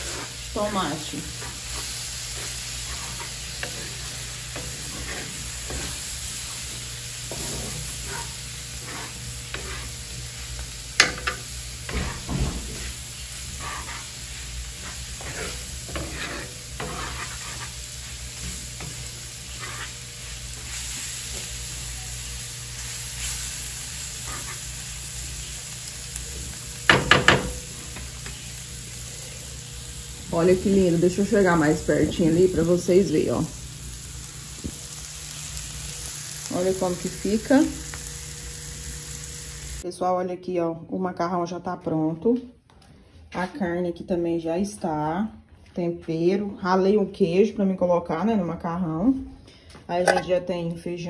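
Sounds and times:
meat sizzling in a pan: 0.0 - 39.8
spoon scraping a pan: 1.1 - 6.6, 7.2 - 21.4, 24.1 - 24.7
utensil knocking on pan: 26.9 - 27.6.

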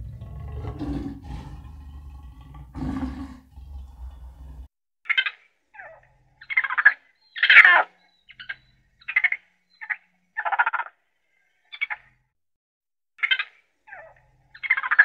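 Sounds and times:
raccoon chittering calls: 5.1 - 10.9, 13.2 - 15.0.

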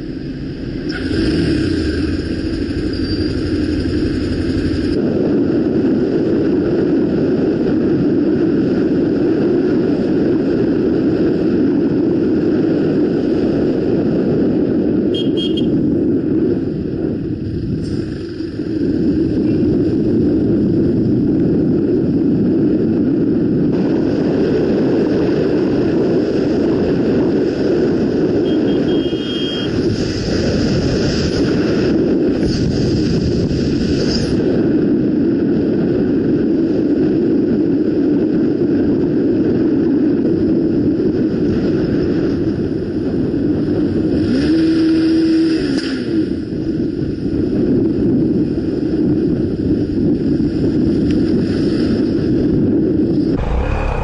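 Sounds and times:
motorcycle engine running: 0.0 - 5.0, 53.1 - 54.0
wind on microphone: 0.0 - 54.0.

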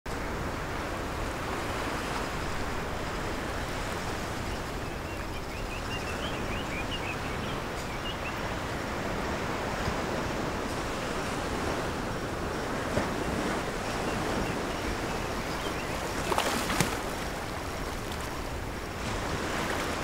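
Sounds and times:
ocean surf washing in: 6.3 - 20.0.

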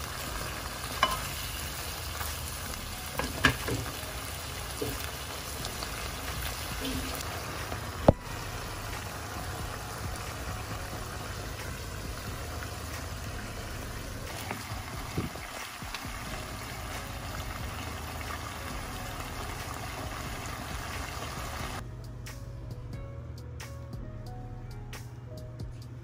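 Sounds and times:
sauce bubbling in a wok: 0.0 - 21.8
low even hum: 5.6 - 15.3.

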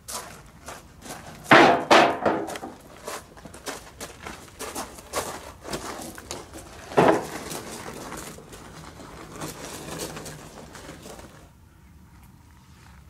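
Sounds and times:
scattered knocks and clatter: 1.4 - 11.4.

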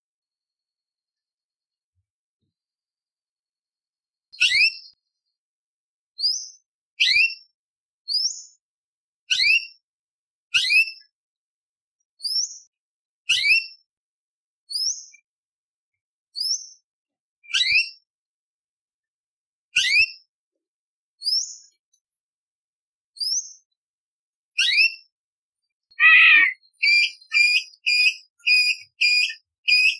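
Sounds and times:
bird whistled calls: 26.0 - 29.9.

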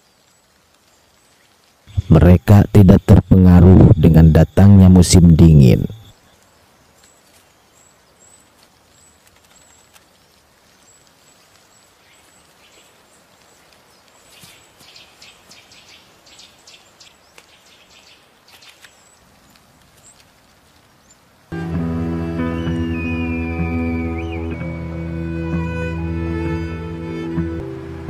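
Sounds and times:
small birds chirping: 0.0 - 21.6.

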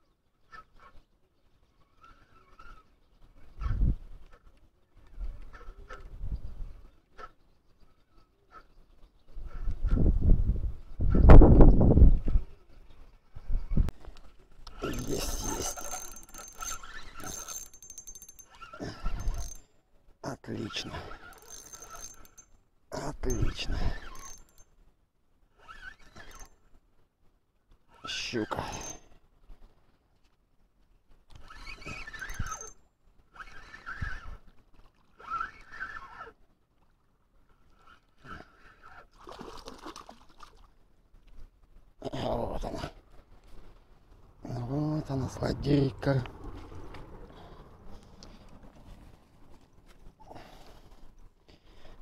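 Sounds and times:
fast reel clicks: 14.7 - 19.6, 21.2 - 22.5, 23.2 - 24.6, 25.6 - 26.5, 28.7 - 28.9, 31.3 - 32.8
fishing reel gear whine: 14.7 - 19.6, 21.0 - 22.6, 23.2 - 24.6, 25.6 - 26.6, 28.6 - 29.0, 31.3 - 34.4, 35.2 - 36.3.

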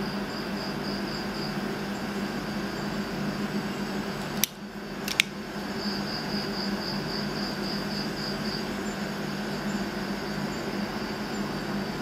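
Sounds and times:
multi-tool metal clicks: 4.3 - 5.3.

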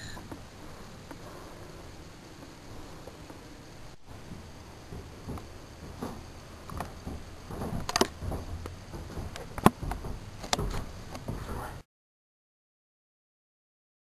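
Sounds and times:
sharp clicks and knocks: 4.1 - 11.5.

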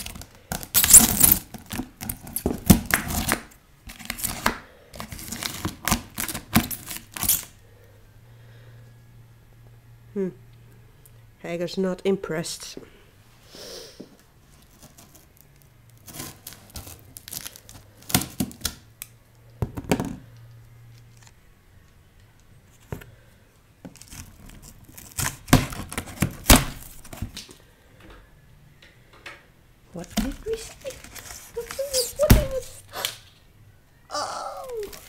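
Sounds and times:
cardboard box being torn open: 23.9 - 27.4, 30.3 - 32.8.

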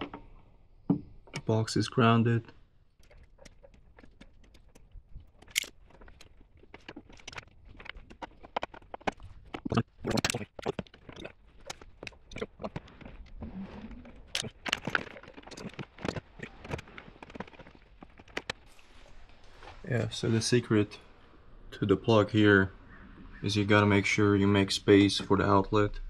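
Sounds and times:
clicks taps and rattles of wires: 2.5 - 13.4, 14.2 - 18.8.

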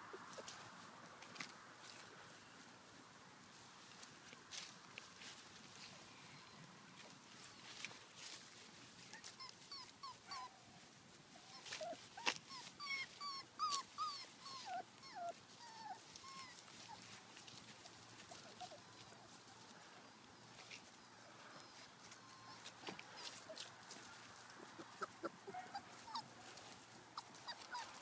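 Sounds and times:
puppies yipping and whimpering: 9.0 - 10.8, 11.4 - 17.2, 17.8 - 19.4, 21.4 - 23.6, 24.6 - 28.0.

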